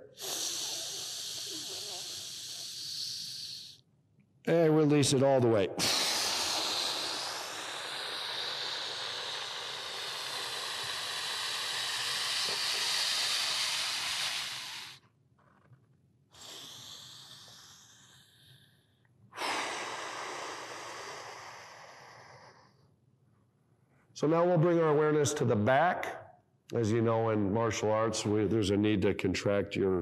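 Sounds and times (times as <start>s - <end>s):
man exhaling forcefully: 0.0s - 3.8s, 5.8s - 15.0s, 16.3s - 18.7s, 19.4s - 22.7s.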